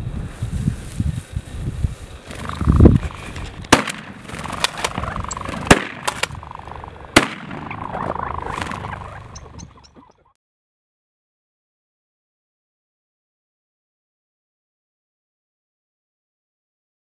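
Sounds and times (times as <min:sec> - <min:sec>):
wind noise: 0:00.0 - 0:10.1
light cracks: 0:03.3 - 0:06.4
shotgun shots: 0:03.7 - 0:08.8.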